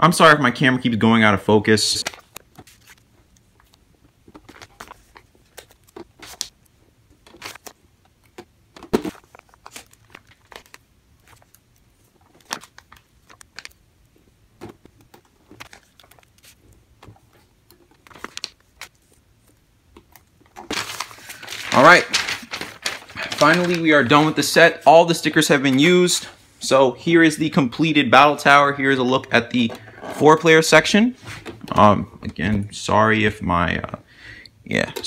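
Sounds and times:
sticker sheet crinkling: 2.0 - 6.6, 7.2 - 13.8, 14.6 - 25.9.

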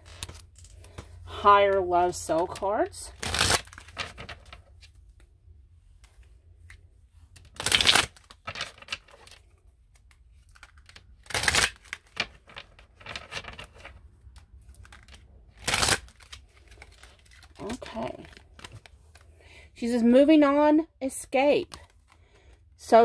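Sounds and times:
card clicks and rustles: 6.0 - 19.3
cards being shuffled: 6.0 - 19.3.

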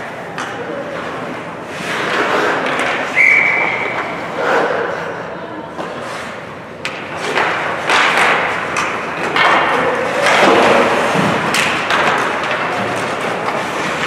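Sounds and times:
skate blades scraping ice: 0.8 - 5.1, 5.8 - 14.0
sticks and puck knocking: 6.8 - 14.0.

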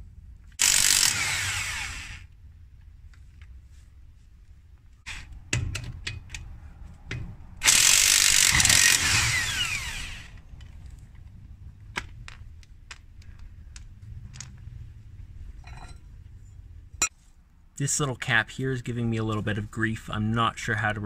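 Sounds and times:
electric impact wrench bursts: 0.6 - 2.3, 7.6 - 10.4.

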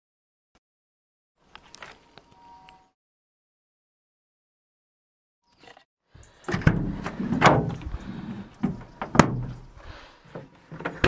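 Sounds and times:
thuds and rustling in cargo area: 6.5 - 9.8
van door clunking open: 6.5 - 9.8.

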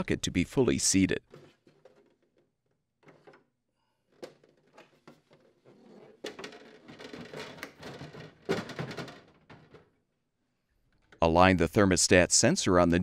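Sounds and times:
plastic scraping against plastic: 1.2 - 3.5, 4.1 - 10.0
plastic bucket knock: 6.2 - 9.9.

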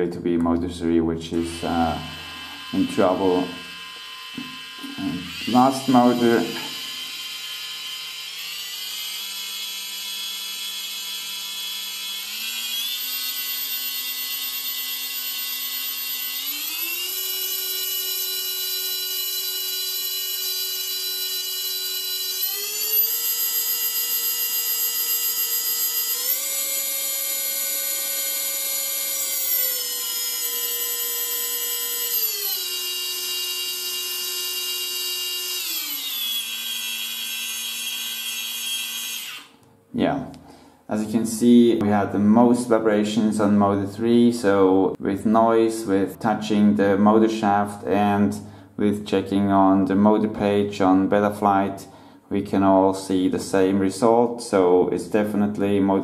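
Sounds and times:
brushless motor whine: 1.5 - 39.6.

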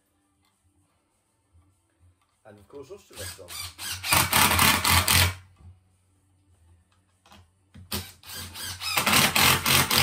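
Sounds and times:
impact driver hammering screws: 3.2 - 5.4, 7.9 - 10.0.

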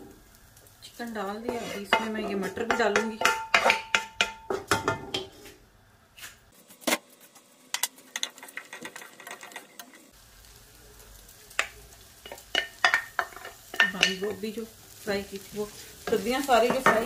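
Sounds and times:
wooden spatula knocking on pan: 1.5 - 5.4, 16.1 - 17.0.

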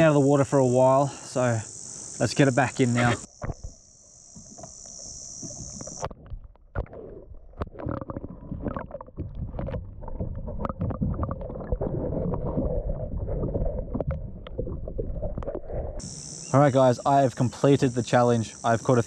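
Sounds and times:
high steady buzz: 0.0 - 6.1, 16.0 - 19.0
muffled underwater rumbling and sloshing: 2.9 - 16.1.

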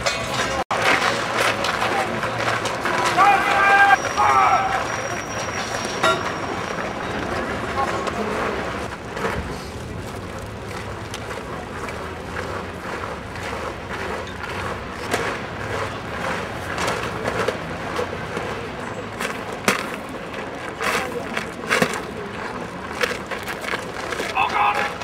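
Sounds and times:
crowd hubbub: 0.0 - 25.0
marching footsteps: 0.0 - 25.0.

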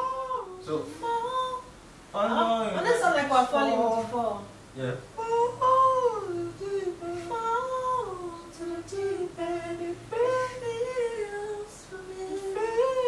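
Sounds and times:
woman humming a melody: 5.2 - 13.0.

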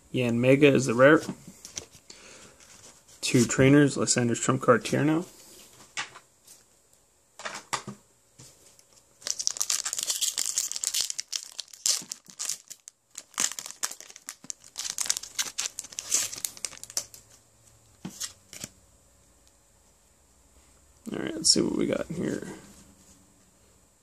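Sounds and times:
foil wrapper crinkling and tearing: 9.2 - 17.2.

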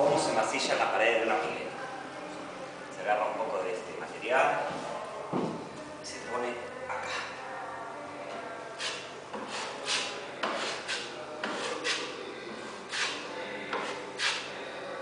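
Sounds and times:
putty knife scraping concrete: 8.8 - 12.1, 12.9 - 13.2, 13.8 - 14.5.

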